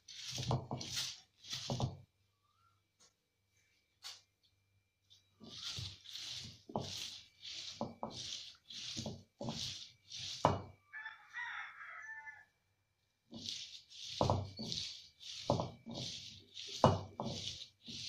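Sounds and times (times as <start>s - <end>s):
stone roller grinding on stone slab: 0.0s - 2.1s, 5.4s - 10.9s, 13.3s - 18.0s.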